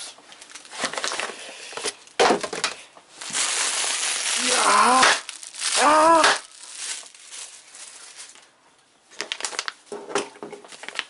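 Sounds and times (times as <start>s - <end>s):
plastic packaging crinkling: 0.3s - 1.4s, 3.1s - 8.5s, 9.1s - 9.9s, 10.7s - 11.0s.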